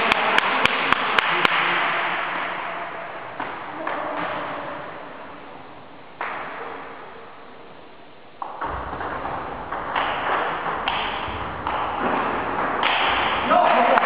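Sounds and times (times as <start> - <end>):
table tennis ball strikes: 6.2 - 6.9, 8.4 - 14.0
ball bouncing on table: 8.4 - 13.3.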